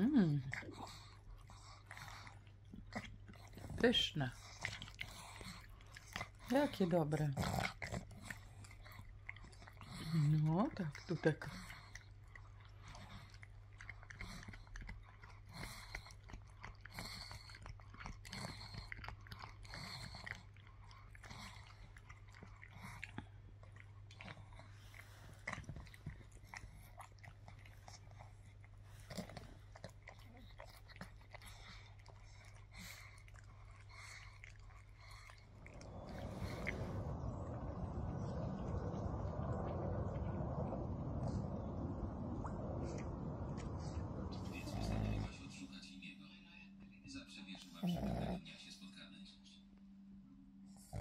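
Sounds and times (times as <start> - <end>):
dog chewing hard chew: 11.0 - 39.3.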